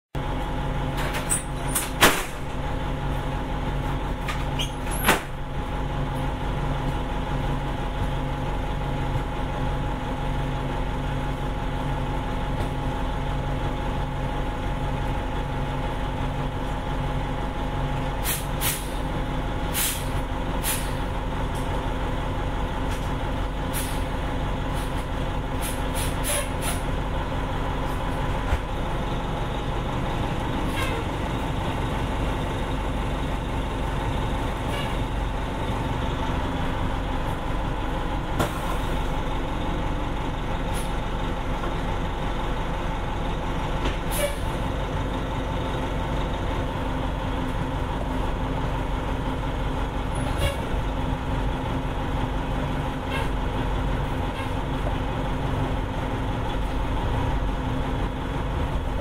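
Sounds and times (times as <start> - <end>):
diesel bus engine running: 0.1 - 59.0
air hissing: 19.7 - 21.0.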